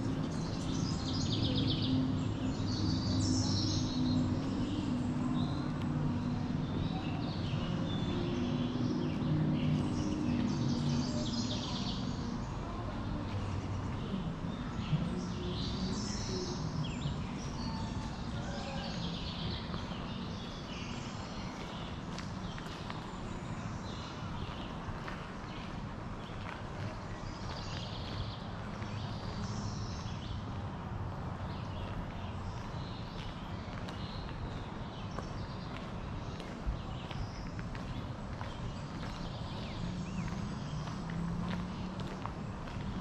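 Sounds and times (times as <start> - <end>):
songbirds chirping: 0.0 - 43.0
steady outdoor background: 0.0 - 43.0.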